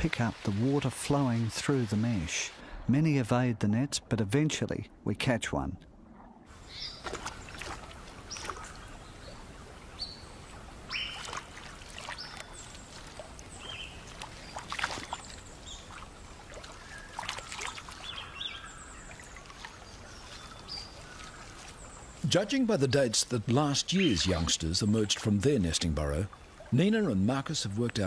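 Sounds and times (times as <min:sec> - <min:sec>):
water sloshing and splashing: 0:00.0 - 0:02.7, 0:06.0 - 0:28.0
birds chirping: 0:06.6 - 0:28.0.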